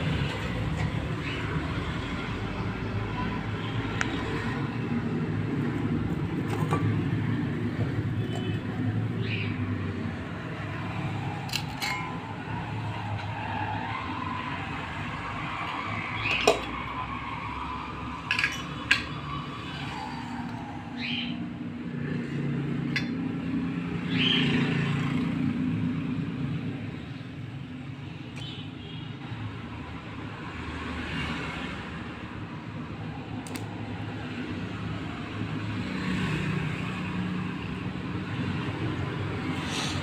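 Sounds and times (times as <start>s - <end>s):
steel bowls clinking and scraping: 11.5s - 12.6s, 16.2s - 16.9s, 18.2s - 19.2s, 22.9s - 23.2s.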